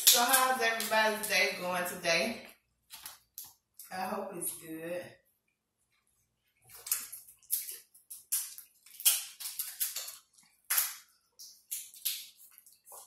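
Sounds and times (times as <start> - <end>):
crab shells cracking: 6.8 - 12.5.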